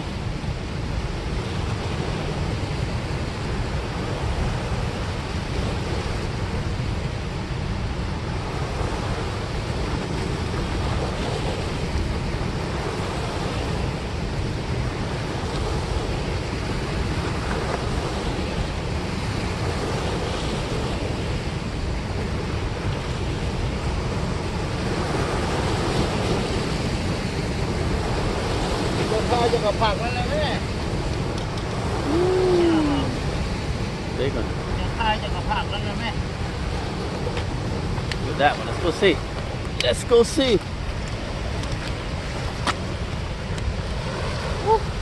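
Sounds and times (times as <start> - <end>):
turbulent water rushing: 0.0 - 45.0.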